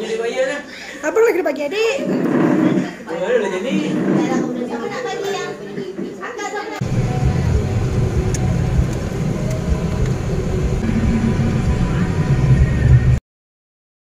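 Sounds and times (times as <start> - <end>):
car road and wind rumble: 6.8 - 13.2.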